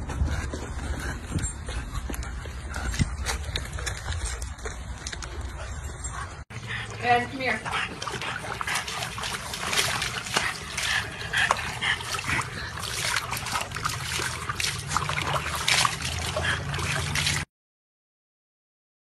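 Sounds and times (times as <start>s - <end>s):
water splashing in a plastic tub: 6.8s - 17.5s.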